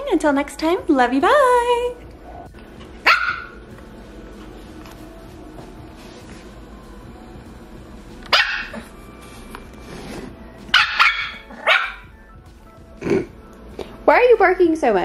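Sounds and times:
puppy yapping: 3.0s - 3.6s, 8.3s - 8.8s, 10.7s - 12.0s.

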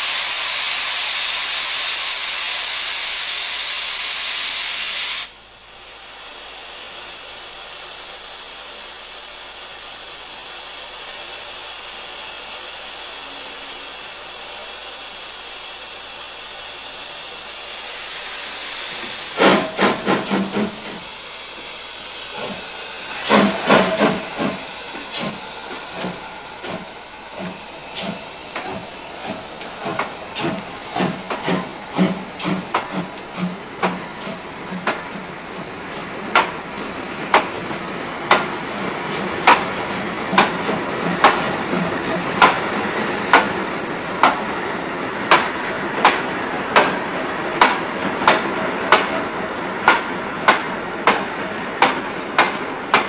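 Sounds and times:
steam hissing: 0.0s - 53.0s
locomotive exhaust chuffs: 13.2s - 44.6s.

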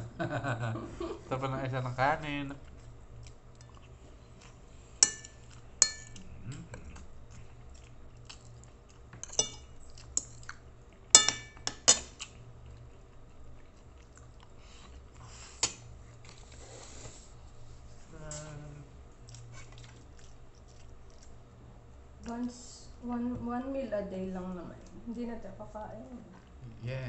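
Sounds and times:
quiet chewing: 2.5s - 23.1s, 24.8s - 26.7s
cutlery clinking on a plate: 5.0s - 6.2s, 9.2s - 10.3s, 11.1s - 12.2s.

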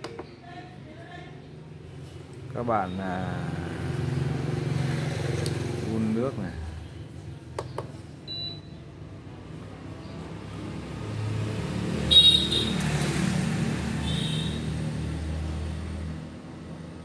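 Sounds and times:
control panel beep: 8.3s - 8.8s.

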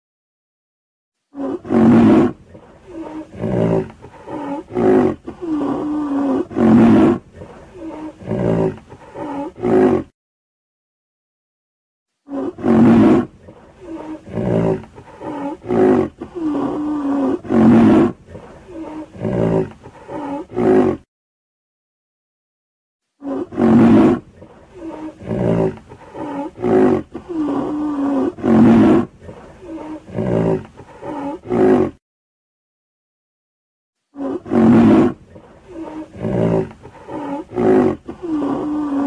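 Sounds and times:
rhinoceros calling: 34.2s - 39.0s.

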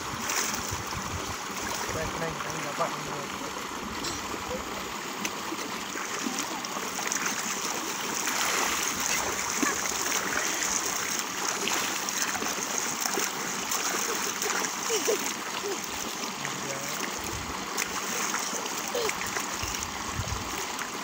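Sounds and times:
water gushing into channel: 0.0s - 21.0s
bucket of water pouring: 3.9s - 21.0s
hands slapping water: 5.2s - 19.9s.

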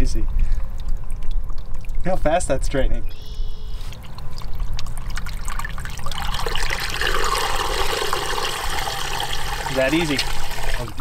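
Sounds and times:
water gurgling down a drain hole: 0.6s - 2.2s, 3.9s - 11.0s.

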